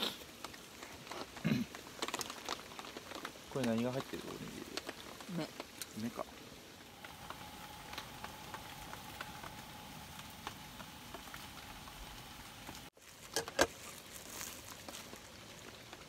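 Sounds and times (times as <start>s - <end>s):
light rain pattering: 0.0s - 16.0s
plastic wrap crinkling: 0.0s - 16.0s
faint steady hum: 5.8s - 14.0s.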